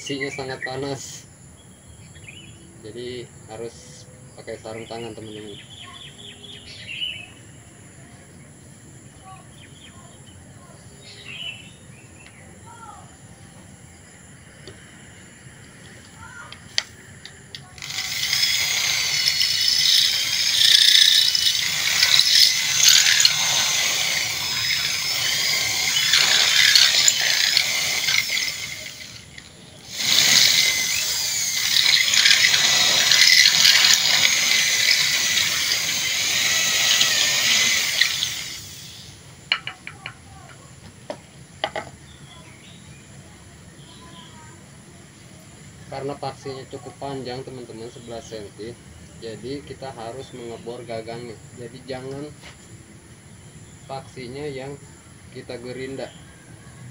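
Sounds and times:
electric drill squealing through metal: 0:17.8 - 0:39.2.

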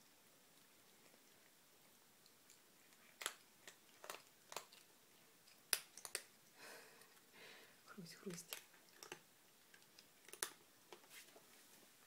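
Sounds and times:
cats crunching dry kibble: 0:00.1 - 0:07.3, 0:08.0 - 0:11.3.

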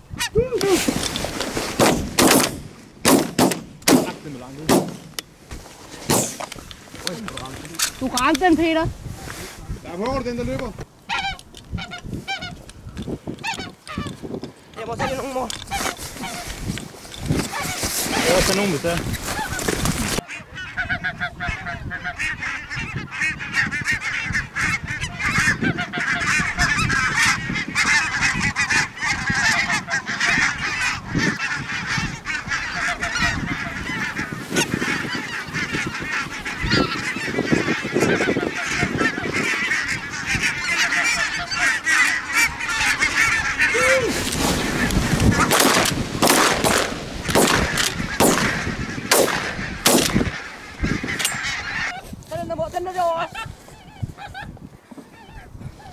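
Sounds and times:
flock of geese calling: 0:03.0 - 0:55.9.

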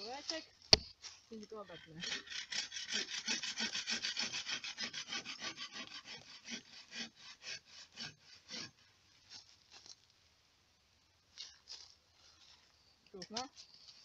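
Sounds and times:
bow saw rasping through wood: 0:01.5 - 0:09.4.

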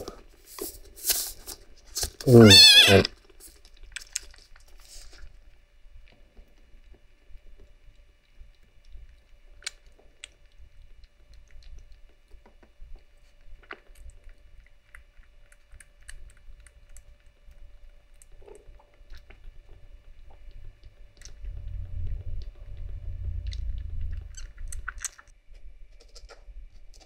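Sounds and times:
kitten sucking and gulping: 0:03.2 - 0:05.4, 0:08.5 - 0:25.3.

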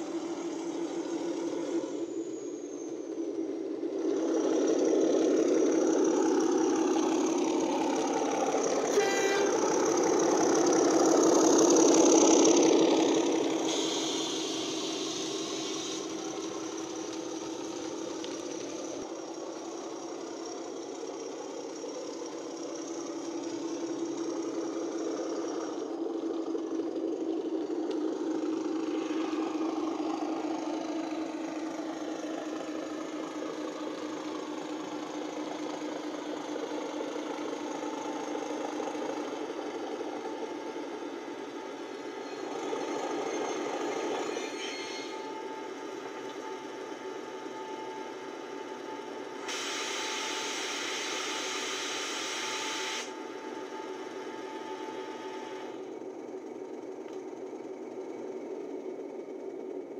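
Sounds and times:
diesel locomotive engine drone: 0:00.0 - 0:59.9
locomotive horn toot: 0:08.9 - 0:09.8.

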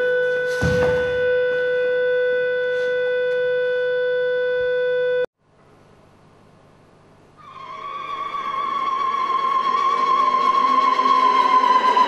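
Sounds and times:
steady musical tone: 0:07.4 - 0:12.0.

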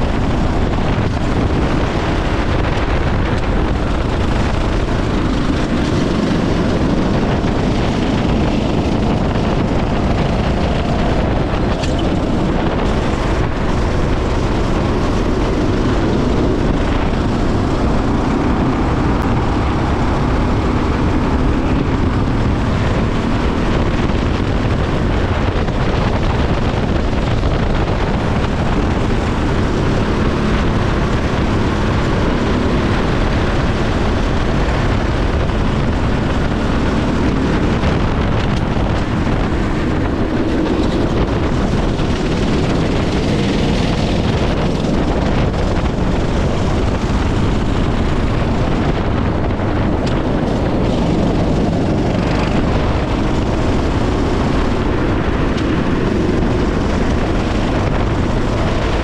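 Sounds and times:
go-kart engine racing: 0:00.0 - 0:59.0
wind over microphone: 0:00.0 - 0:59.0.

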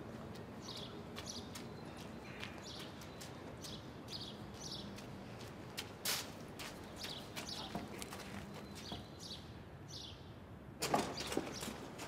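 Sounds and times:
small birds chirping: 0:00.3 - 0:05.6, 0:06.6 - 0:10.4
faint footsteps: 0:04.5 - 0:09.1.

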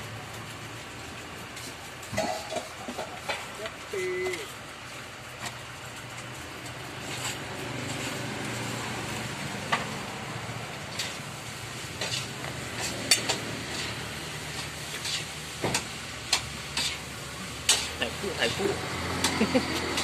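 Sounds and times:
knife scraping on chopping board: 0:12.0 - 0:14.0, 0:14.9 - 0:15.3.

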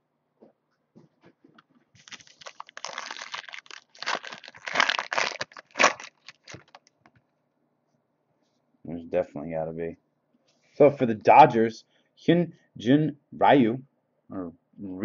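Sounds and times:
foil wrapper tearing and crinkling: 0:02.0 - 0:06.9.

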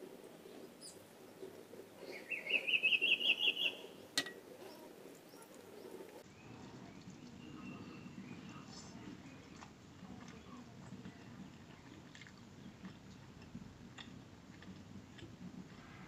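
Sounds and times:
bird trilling: 0:02.0 - 0:06.1.

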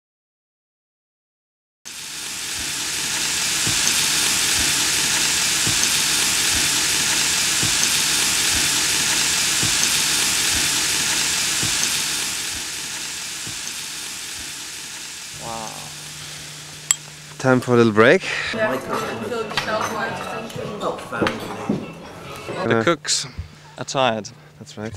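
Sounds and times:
sizzling hiss: 0:01.9 - 0:18.6.

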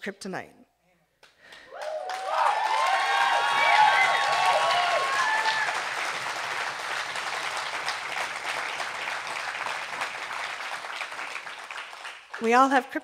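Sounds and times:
audience applauding: 0:01.5 - 0:12.8
audience whooping and cheering: 0:01.7 - 0:11.8.

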